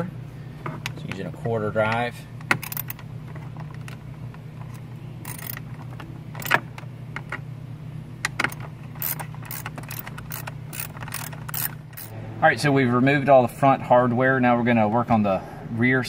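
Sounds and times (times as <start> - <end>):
steady low hum: 0.0 - 16.0
ratchet clicking: 2.6 - 3.0, 4.6 - 5.7, 6.4 - 6.6, 8.4 - 12.1.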